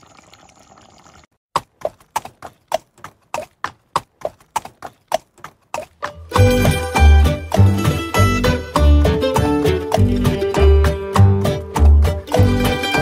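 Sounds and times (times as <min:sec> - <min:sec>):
plucked-string music: 0:06.0 - 0:13.0.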